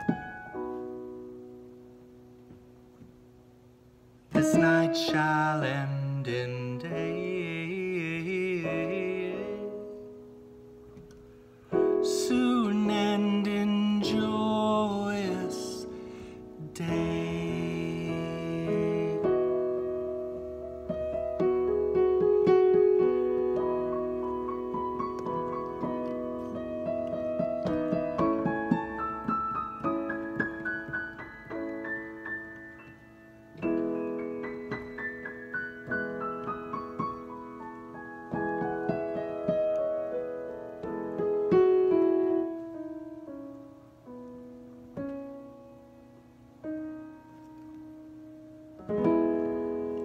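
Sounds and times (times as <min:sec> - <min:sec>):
digital piano playing a hymn: 0:00.0 - 0:50.0.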